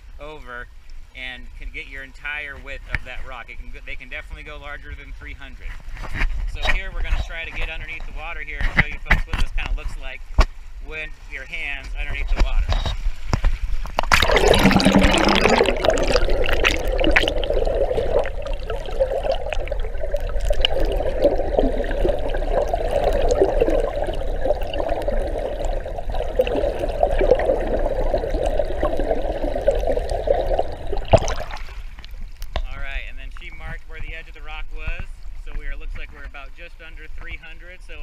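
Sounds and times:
muffled underwater rush: 6.3 - 38.0
splash: 13.4 - 32.2.

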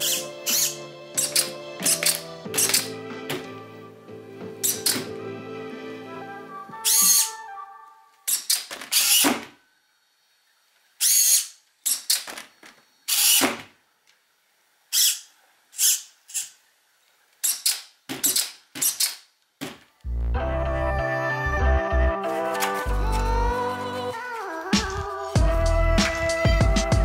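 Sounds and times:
servos whirring: 0.0 - 2.9, 8.3 - 9.4, 11.0 - 13.6.

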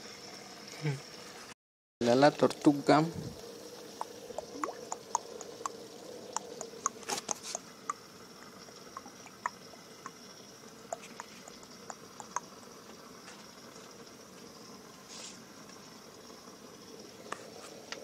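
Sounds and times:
faint steady hum: 2.0 - 18.0
water dripping and bubbling: 3.4 - 15.0
water splash: 4.0 - 5.7.

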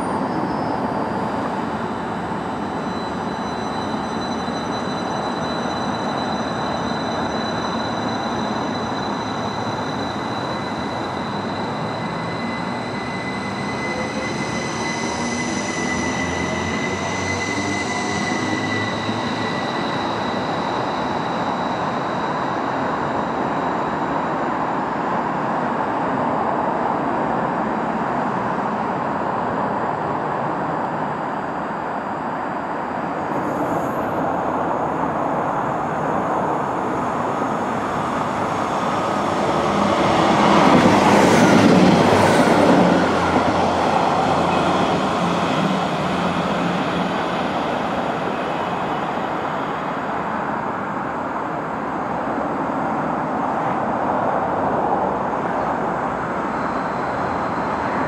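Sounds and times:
train running past: 0.0 - 58.0
train traction whine: 0.0 - 58.0
train wheel-on-rail noise: 0.0 - 58.0.

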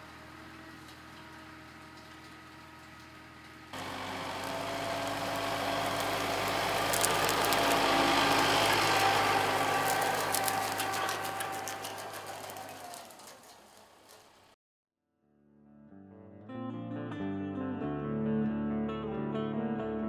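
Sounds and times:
tractor diesel engine: 0.0 - 14.6
clicking and rattling implement: 0.7 - 14.5.

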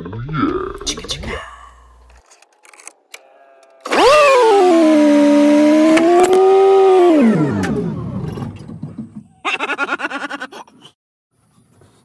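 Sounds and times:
starter whine: 2.0 - 8.9.

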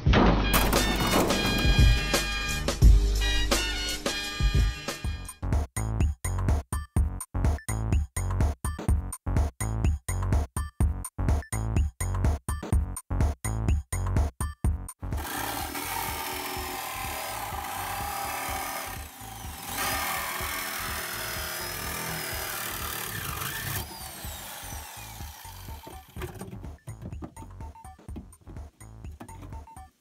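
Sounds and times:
reciprocating saw cutting sheet steel: 15.2 - 26.5.

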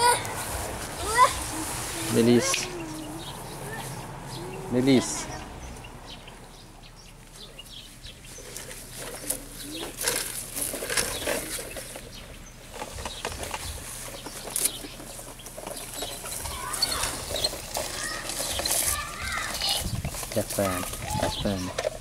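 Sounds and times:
rustling on grass: 0.0 - 6.5, 7.1 - 22.0
plastic toy trucks clicking: 9.0 - 22.0.

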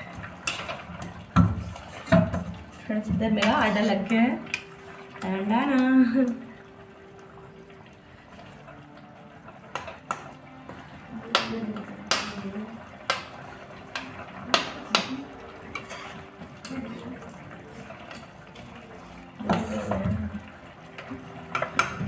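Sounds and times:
metal kitchenware clinking: 0.4 - 1.1, 13.9 - 17.0.

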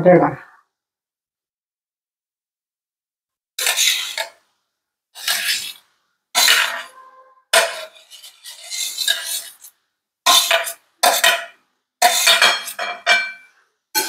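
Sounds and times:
metal spatula scraping steel: 3.6 - 4.4, 5.2 - 14.0.

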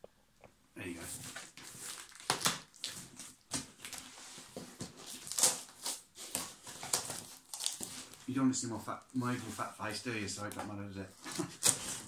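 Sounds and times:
cardboard flaps scraping: 1.0 - 8.3
packing tape tearing: 1.4 - 4.1, 5.0 - 8.2, 11.3 - 12.0.

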